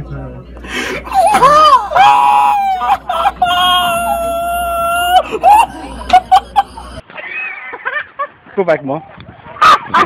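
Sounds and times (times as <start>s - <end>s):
person screaming: 1.1s - 7.0s
person yelping: 1.1s - 7.0s.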